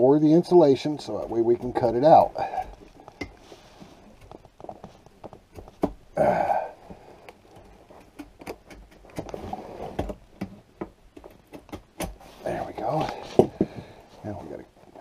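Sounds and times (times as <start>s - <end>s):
knife scratching and cutting insulation: 0.0s - 5.8s.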